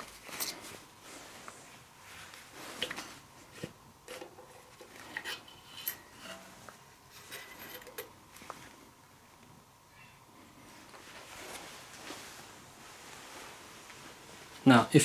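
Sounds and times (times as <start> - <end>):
metal clicks and clinks: 7.2 - 8.1.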